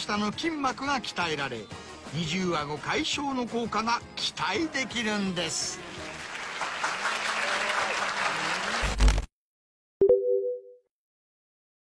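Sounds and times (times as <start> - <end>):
studio audience applause: 4.6 - 9.1
two-tone electronic chime: 10.0 - 10.8.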